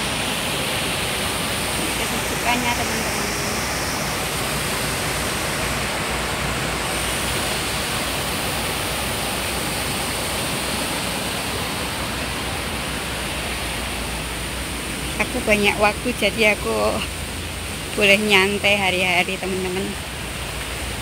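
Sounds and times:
stream water rushing over rocks: 0.0s - 21.0s.

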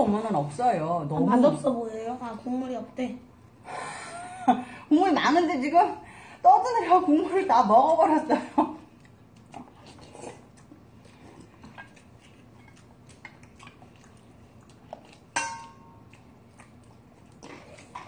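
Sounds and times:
chewing: 8.6s - 18.0s
ringing clink on metal bowl: 15.4s - 15.9s
utensils clicking on metal bowls: 15.4s - 15.9s.

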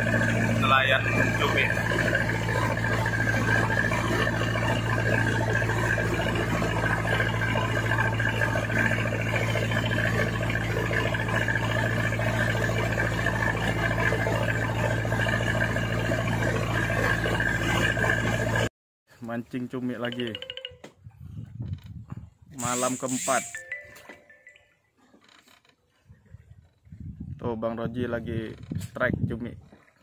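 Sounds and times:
boat engine running: 0.0s - 18.7s, 20.0s - 30.0s
water rushing along hull: 0.0s - 18.7s.

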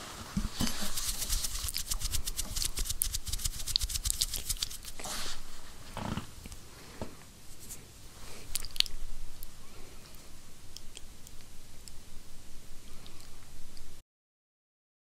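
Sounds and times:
fingertips tapping microphone grille: 0.4s - 5.1s.

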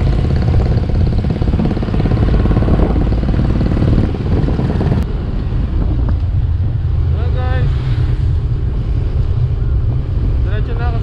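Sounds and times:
motorcycle engine running: 0.0s - 5.0s
road and wind noise: 0.0s - 11.0s.

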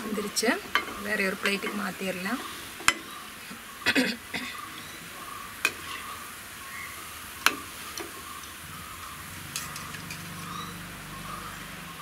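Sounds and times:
food deep-frying in hot oil: 4.6s - 12.0s.

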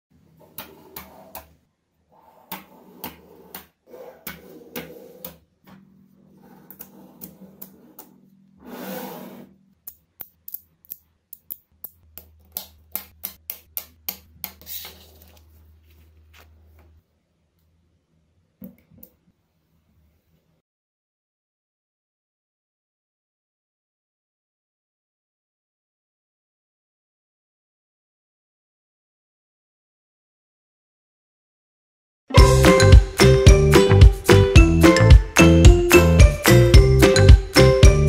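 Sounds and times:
magnetic balls clicking: 9.8s - 14.3s.

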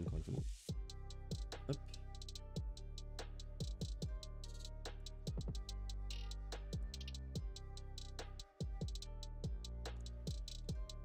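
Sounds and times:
music with a beat: 0.1s - 11.0s.

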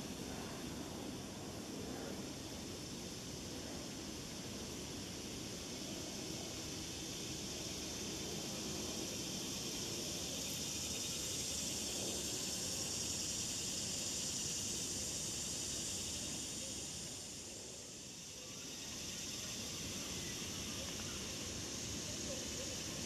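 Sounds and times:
high-pitched insect chorus: 0.0s - 23.0s.

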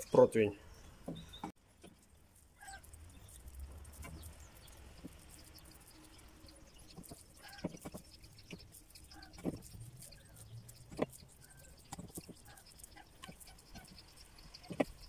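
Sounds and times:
faint animal calls: 2.6s - 3.0s, 7.0s - 15.0s.

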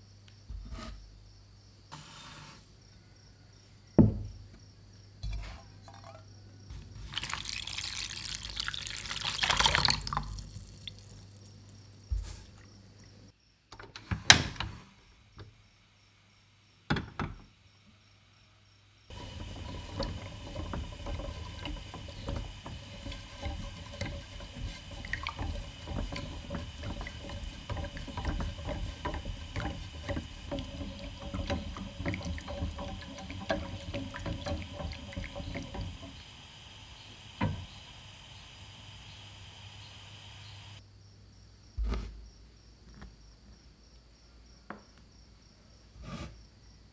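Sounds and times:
whisk clattering against pan: 19.1s - 38.0s.

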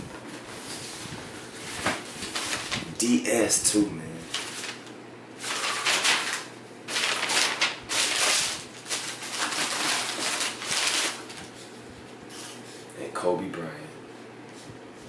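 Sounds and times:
tissue paper rustling: 0.1s - 2.9s, 4.2s - 12.6s.

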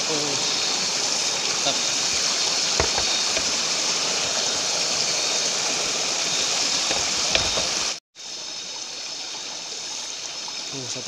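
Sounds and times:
water rushing over rocks: 0.0s - 8.0s.

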